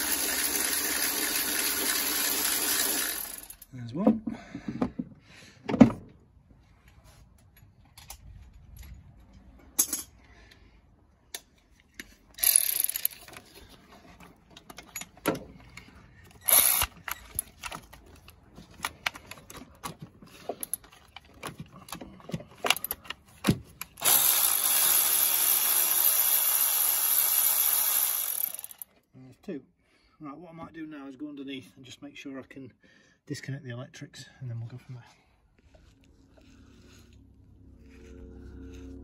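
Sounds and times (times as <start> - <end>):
cordless power tool running: 0.0 - 3.6, 16.5 - 17.1, 24.0 - 28.8
tools clicking and knocking: 11.3 - 25.0.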